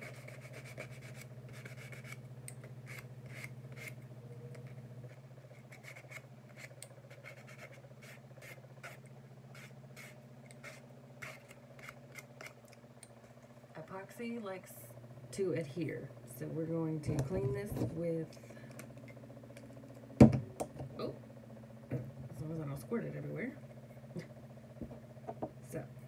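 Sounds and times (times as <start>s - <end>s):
sandpaper rubbing plastic: 0.0s - 2.2s, 2.9s - 4.0s, 5.5s - 12.6s
low hum: 0.0s - 26.0s.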